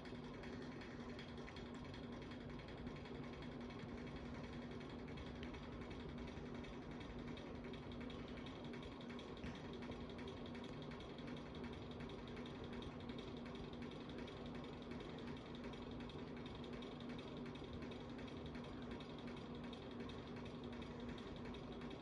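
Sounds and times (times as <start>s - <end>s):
ceiling fan motor hum: 0.0s - 22.0s
fan ticking and creaking: 0.0s - 22.0s.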